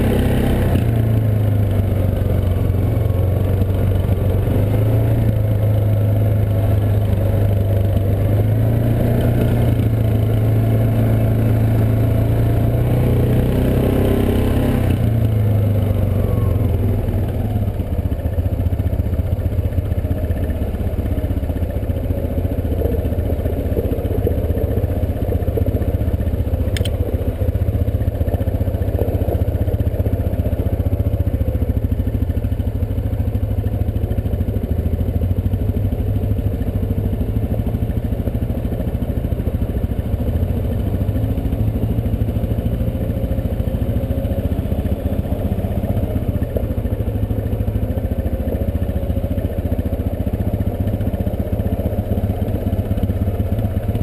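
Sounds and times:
atv engine running: 0.0s - 54.0s
sharp click: 26.7s - 27.0s.

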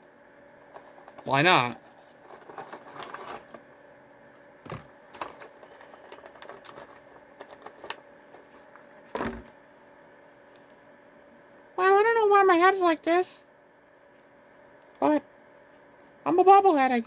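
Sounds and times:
packaging clicks and crinkles: 5.1s - 8.5s.

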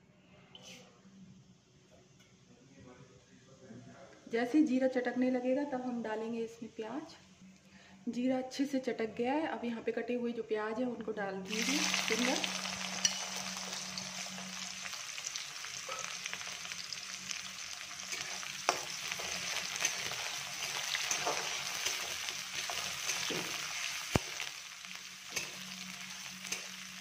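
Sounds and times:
onions sizzling in hot oil: 11.5s - 27.0s
metal spatula scraping pan: 18.0s - 24.1s.

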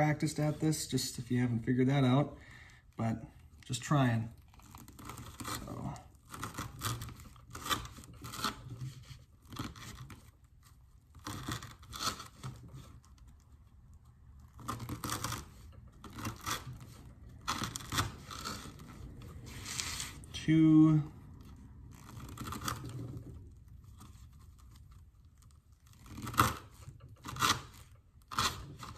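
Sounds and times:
knife sawing through rope: 14.6s - 20.9s, 25.8s - 28.9s.

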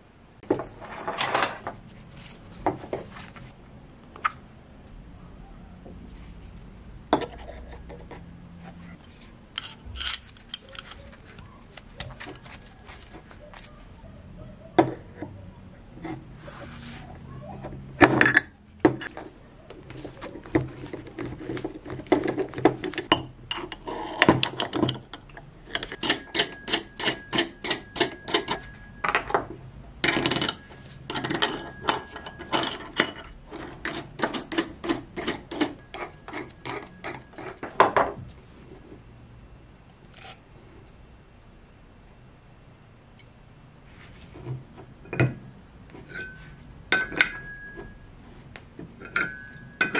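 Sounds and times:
metal parts clinking: 0.8s - 1.7s, 7.1s - 13.6s, 18.0s - 35.9s, 46.1s - 47.9s, 49.0s - 49.9s.

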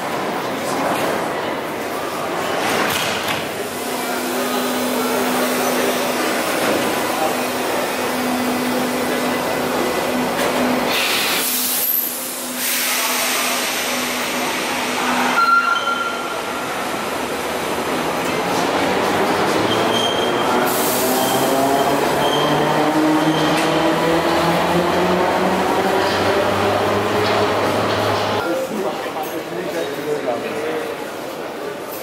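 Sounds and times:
train cars rumbling: 3.5s - 28.4s
train electric motors humming: 3.6s - 15.4s, 16.2s - 28.4s
short higher tone: 15.4s - 16.4s.

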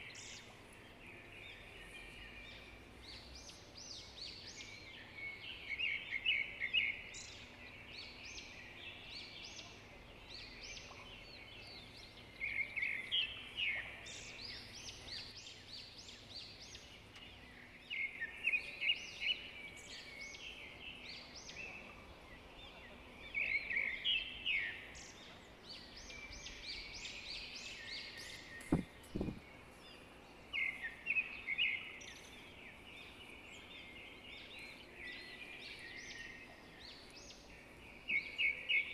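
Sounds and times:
songbird singing: 0.0s - 38.9s
brief low thump: 28.6s - 29.4s.

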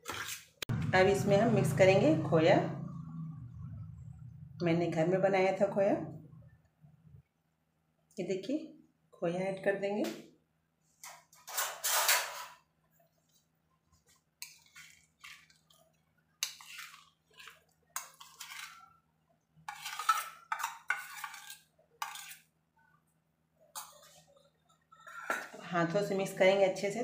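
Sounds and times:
faint low hum: 0.7s - 8.2s
steel spoon scraping steel bowl: 11.4s - 12.6s, 14.4s - 15.7s, 16.4s - 19.0s, 19.7s - 22.5s, 23.8s - 25.6s.

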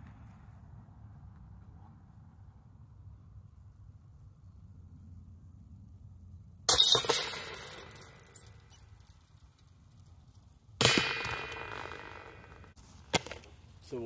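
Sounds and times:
discs hitting basket chains: 6.7s - 9.7s, 10.8s - 13.4s.

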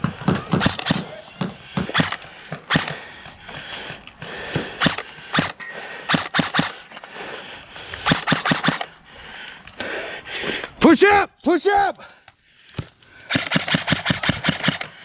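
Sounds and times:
airsoft guns firing: 0.0s - 3.1s, 4.6s - 6.8s, 8.0s - 9.0s, 13.3s - 15.0s.

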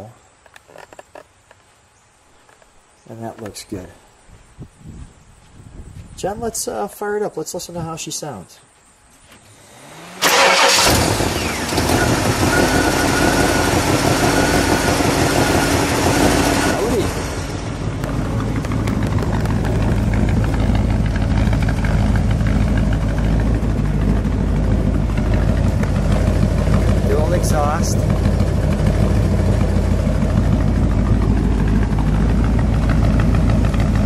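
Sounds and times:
high-pitched engine whine: 9.4s - 34.0s
car engine idling: 9.6s - 34.0s.

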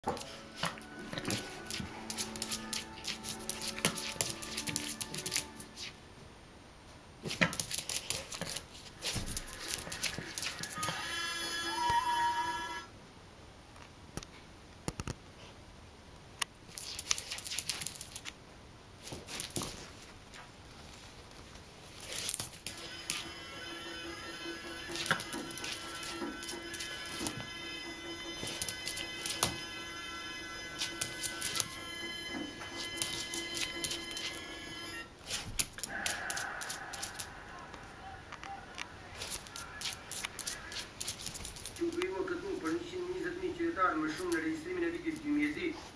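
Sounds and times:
dog claws scratching on tiles: 0.1s - 6.0s, 7.2s - 10.9s, 16.7s - 18.3s, 19.0s - 20.5s, 21.9s - 23.2s, 24.9s - 27.4s, 35.2s - 37.3s, 39.2s - 41.9s.

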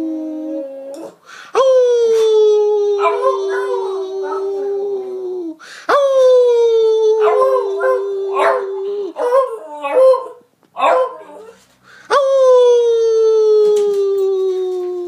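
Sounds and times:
dog howling: 2.7s - 5.6s, 7.0s - 11.6s.

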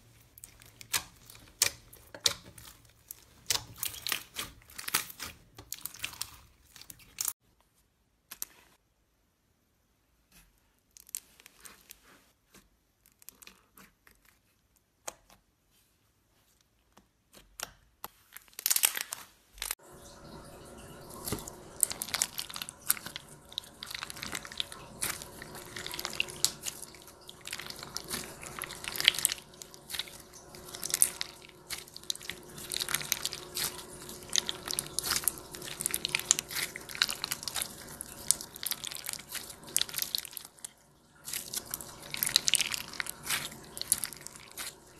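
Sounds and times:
slime crackling and popping: 0.1s - 7.4s, 17.4s - 19.8s, 21.2s - 44.9s.

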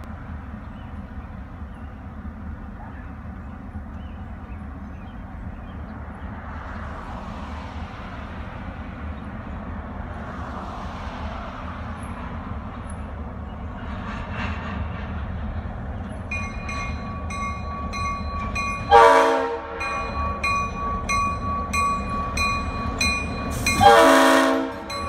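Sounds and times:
road vehicles rushing past: 0.0s - 16.3s
diesel locomotive engine rumble: 0.0s - 25.0s.

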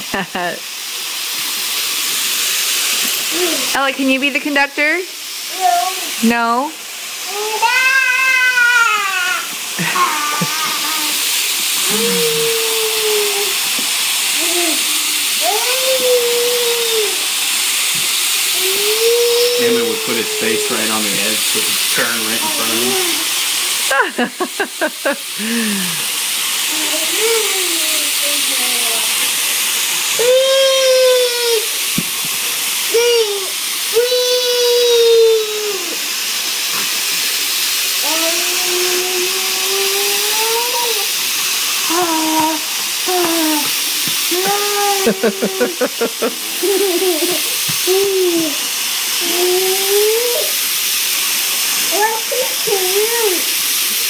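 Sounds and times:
steady hiss: 0.0s - 54.0s
young child's drawn-out voice: 3.3s - 3.8s, 5.5s - 6.2s, 7.2s - 11.2s, 11.8s - 13.6s, 14.4s - 17.2s, 18.6s - 20.8s, 26.7s - 29.2s, 30.2s - 31.8s, 32.9s - 36.0s, 38.0s - 41.1s, 41.8s - 45.4s, 46.6s - 48.6s, 49.2s - 50.5s, 51.9s - 53.5s.

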